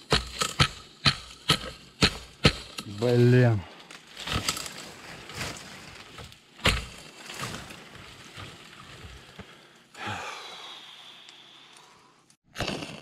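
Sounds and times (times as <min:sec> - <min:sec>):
wooden sticks being chopped: 0:00.0 - 0:07.6
scraping and rustling: 0:02.8 - 0:09.4.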